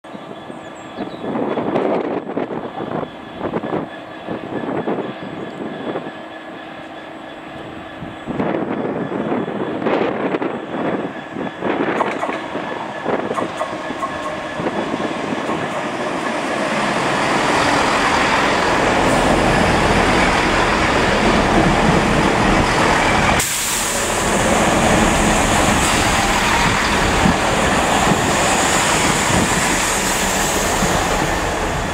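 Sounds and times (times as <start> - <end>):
diesel train passing: 0.0 - 31.9
wind gusts: 0.0 - 31.9
air brake hiss: 23.4 - 24.2.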